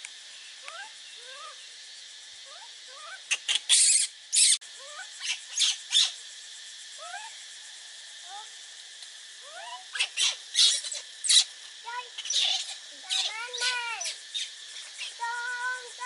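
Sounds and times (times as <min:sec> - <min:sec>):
high insect drone: 0:00.0 - 0:16.0
leaves and branches rustling: 0:07.5 - 0:16.0.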